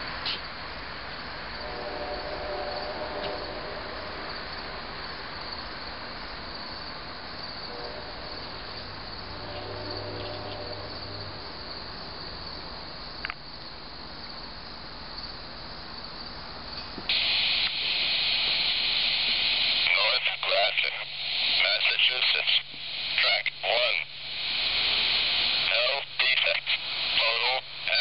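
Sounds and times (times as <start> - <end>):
crickets and insects chirping: 0.0 - 28.0
faint train rumble: 0.0 - 28.0
radio scanner static hiss: 1.5 - 5.0, 7.0 - 13.4, 17.0 - 28.0.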